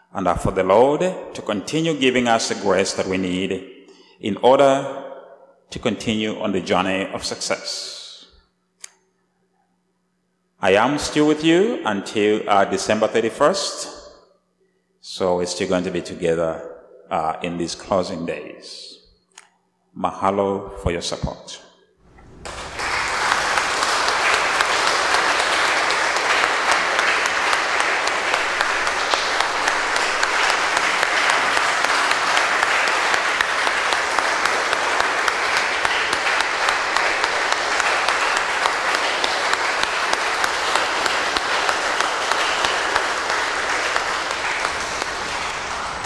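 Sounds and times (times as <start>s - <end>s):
congregation applauding: 22.1s - 46.0s.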